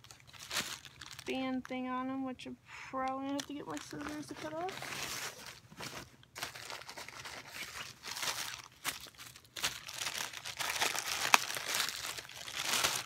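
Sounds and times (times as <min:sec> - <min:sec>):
plastic bag crinkling: 0:00.0 - 0:02.1, 0:03.0 - 0:13.0.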